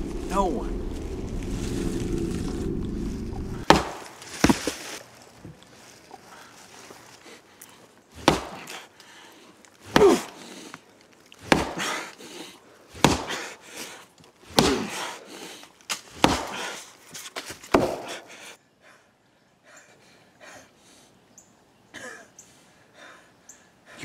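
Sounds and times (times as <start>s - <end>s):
fist punching tree trunk: 3.6s - 4.8s, 8.2s - 8.8s, 9.9s - 10.4s, 11.4s - 12.0s, 13.0s - 13.5s, 14.5s - 15.0s, 16.1s - 16.8s, 17.7s - 18.2s.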